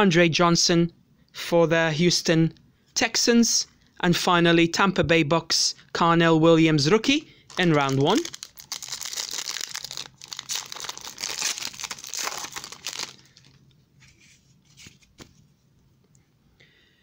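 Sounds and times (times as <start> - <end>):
foil wrapper crinkling: 7.5 - 14.2.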